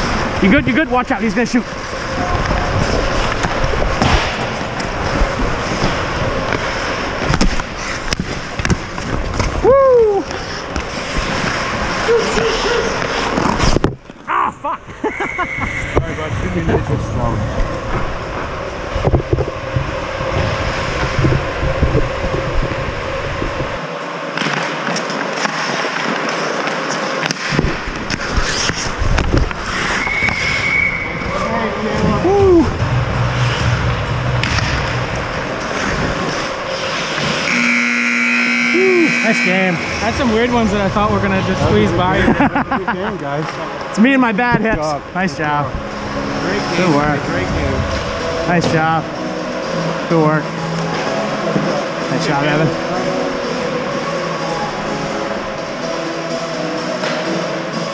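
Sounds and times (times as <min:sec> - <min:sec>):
skates scraping ice: 0:00.0 - 0:14.2, 0:23.8 - 0:32.6, 0:33.2 - 0:37.6
sticks and puck clacking: 0:01.9 - 0:14.3, 0:24.3 - 0:30.6, 0:57.0 - 0:57.4
referee whistle: 0:15.1 - 0:16.0, 0:29.9 - 0:31.4, 0:37.5 - 0:40.0.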